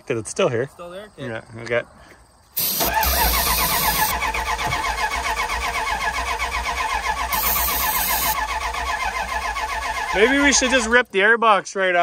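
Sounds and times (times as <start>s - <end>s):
aerosol spray hissing: 2.6s - 4.1s, 7.3s - 8.4s
starter cranking engine: 2.6s - 11.0s.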